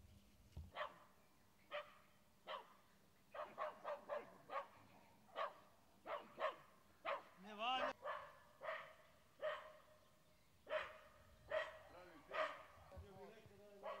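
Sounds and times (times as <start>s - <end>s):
dog barking: 0.7s - 1.1s, 1.7s - 10.0s, 10.6s - 12.8s, 13.8s - 14.0s.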